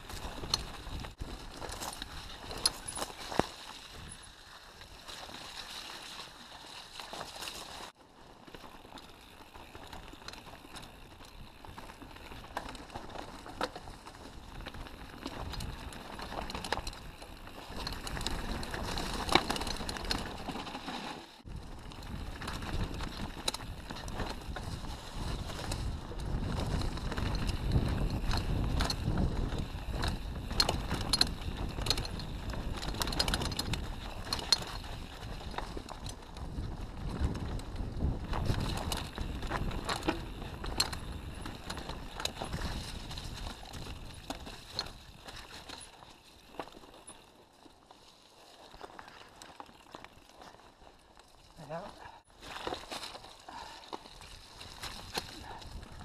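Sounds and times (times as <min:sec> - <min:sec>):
bike rattling and knocking: 0:00.0 - 0:04.2, 0:07.1 - 0:47.8, 0:48.6 - 0:56.0
bike tyres crunching over dirt: 0:00.0 - 0:56.0
wind rumble on microphone: 0:21.5 - 0:45.4, 0:54.8 - 0:56.0.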